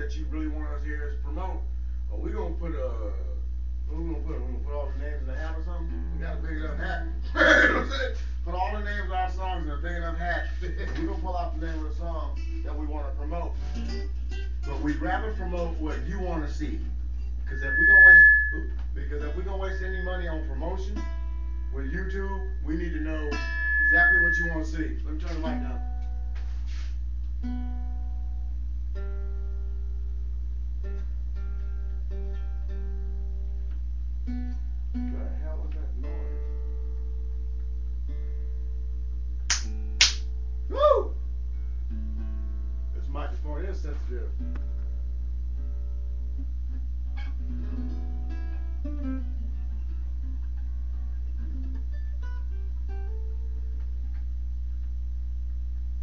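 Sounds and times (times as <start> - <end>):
loud steady low hum: 0.0 - 47.2
guitar strummed and plucked: 13.6 - 15.0, 23.1 - 24.6, 27.4 - 30.0, 30.8 - 35.2, 41.6 - 42.9, 44.4 - 54.4
slow held instrumental notes: 17.4 - 30.0.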